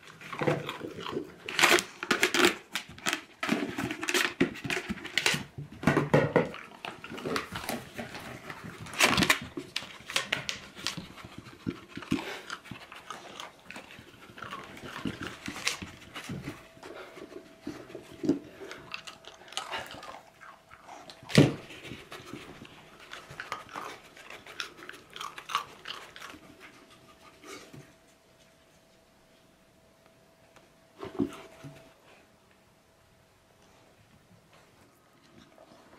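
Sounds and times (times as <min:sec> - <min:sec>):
dog chewing biscuits: 0:00.0 - 0:27.8
dogs knocking plastic bucket: 0:03.4 - 0:06.6.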